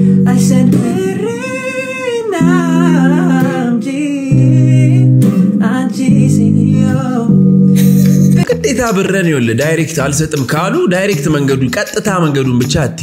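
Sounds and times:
young man singing: 0:00.0 - 0:07.4
instrumental backing: 0:00.0 - 0:13.0.

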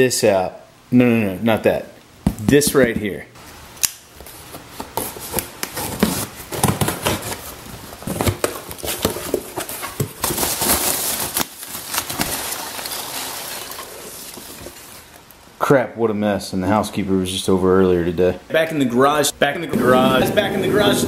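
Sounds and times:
packing peanuts rustling: 0:04.4 - 0:15.3.

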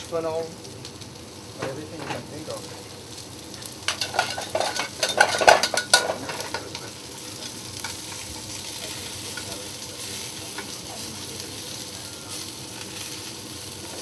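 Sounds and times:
fish sizzling in a hot pan: 0:00.0 - 0:14.0
metal tongs scraping a pan: 0:03.8 - 0:13.2.

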